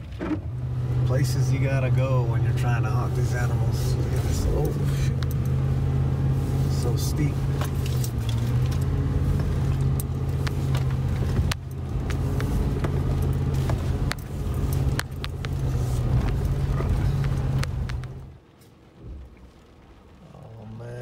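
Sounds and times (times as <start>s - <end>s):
suv engine running low: 0.0s - 21.0s
vehicle knocks and rattles: 7.5s - 18.3s.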